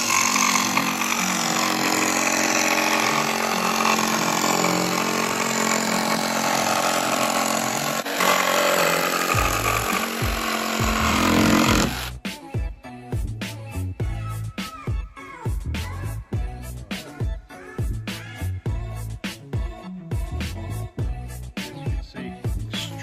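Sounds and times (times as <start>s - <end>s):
jigsaw cutting board: 0.0s - 12.2s.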